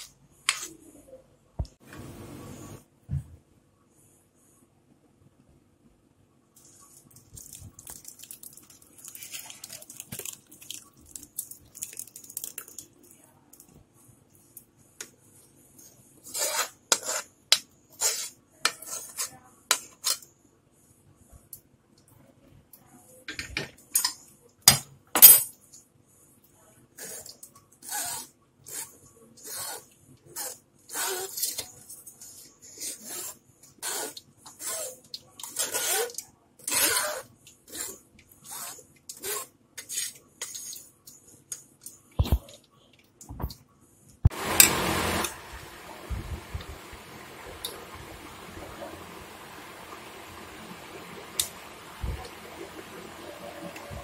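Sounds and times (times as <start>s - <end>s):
spoon scraping metal sieve: 16.2s - 17.3s, 17.9s - 20.2s.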